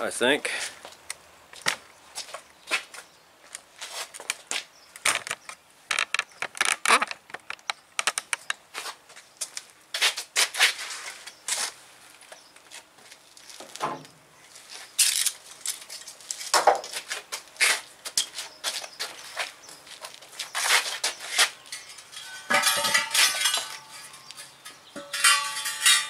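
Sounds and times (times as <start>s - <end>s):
scuffs and knocks on concrete: 12.7s - 21.7s.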